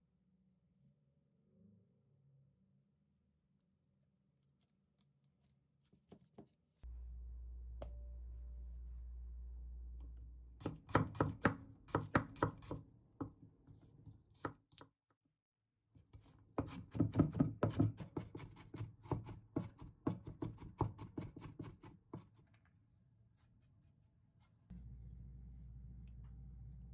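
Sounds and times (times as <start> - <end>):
low hum: 6.8 - 10.6, 24.7 - 26.9
knife chopping on wooden board: 10.6 - 13.4, 16.6 - 22.3.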